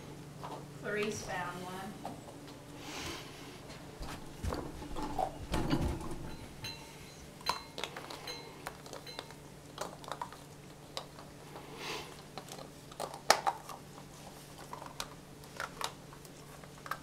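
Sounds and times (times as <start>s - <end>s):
dull knocks and rustles: 3.8s - 6.6s.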